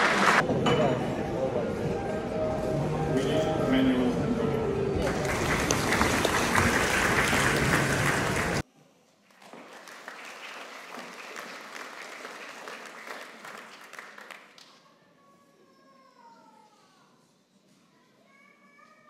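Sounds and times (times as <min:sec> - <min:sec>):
audience applauding: 0:00.0 - 0:00.4, 0:05.0 - 0:08.6, 0:09.3 - 0:14.8.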